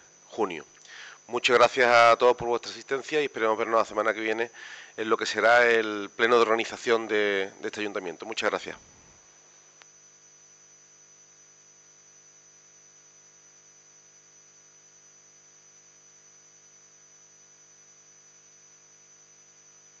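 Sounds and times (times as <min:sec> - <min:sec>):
faint hiss: 0:00.0 - 0:09.9
steady low hum: 0:00.0 - 0:10.0.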